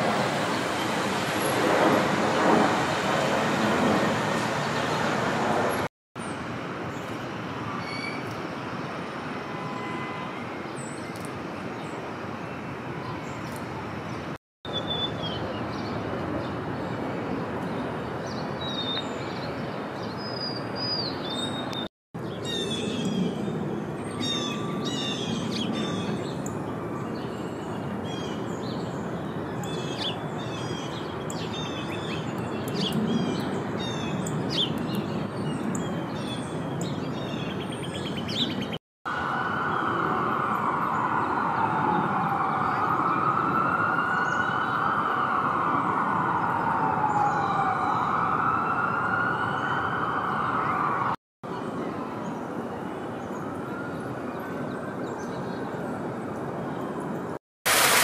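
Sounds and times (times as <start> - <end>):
city background noise: 0.0 - 58.0
emergency siren wailing: 39.1 - 51.2.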